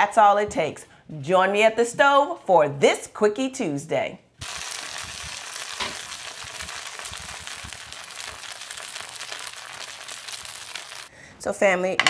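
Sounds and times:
bread sizzling in a skillet: 0:04.4 - 0:11.1.

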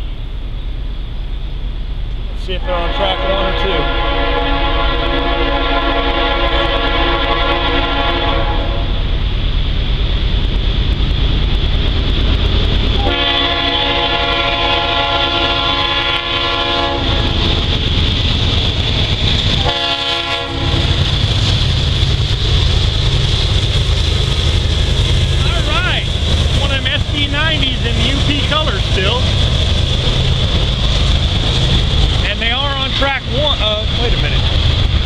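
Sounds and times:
diesel locomotive rumble: 0:00.0 - 0:35.0
train horn blasts: 0:02.5 - 0:09.1, 0:13.0 - 0:17.6, 0:19.6 - 0:21.0.

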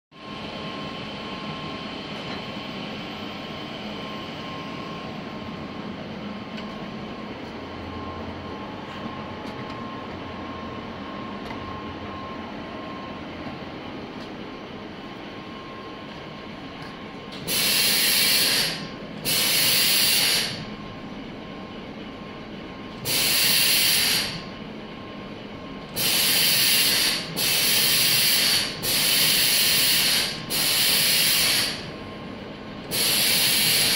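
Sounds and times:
conveyor machinery humming: 0:00.2 - 0:33.9
pneumatic gripper hissing: 0:17.4 - 0:20.6, 0:23.0 - 0:24.4, 0:26.0 - 0:31.8, 0:32.9 - 0:33.9.

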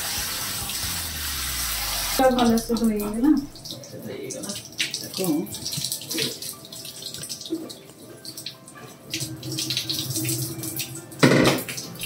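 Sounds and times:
tap water running and splashing: 0:00.0 - 0:12.0.

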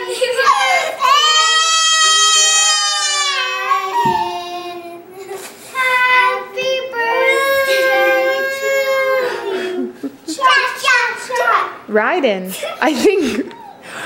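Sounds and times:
toddler girl crying: 0:00.1 - 0:06.0, 0:07.0 - 0:10.6.

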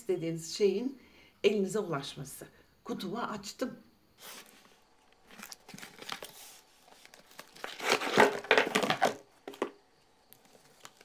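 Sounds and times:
packaging crinkling and rustling: 0:04.4 - 0:11.0.

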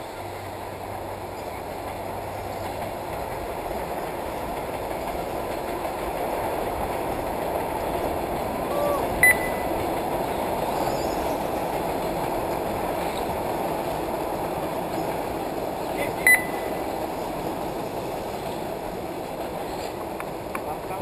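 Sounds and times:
race track background noise: 0:00.0 - 0:21.0
short electronic beep: 0:09.2 - 0:09.7, 0:16.3 - 0:16.7.

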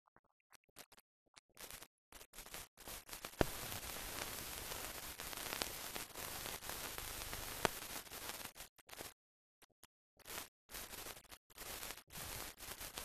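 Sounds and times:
sharp crackling clicks: 0:00.7 - 0:13.0
film surface hiss: 0:01.6 - 0:09.2, 0:10.2 - 0:13.0.

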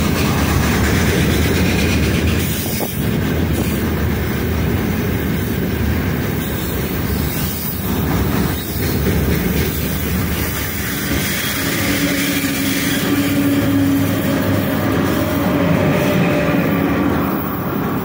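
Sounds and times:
electric locomotive hum: 0:00.0 - 0:18.0
freight train wagons passing: 0:00.0 - 0:18.0.

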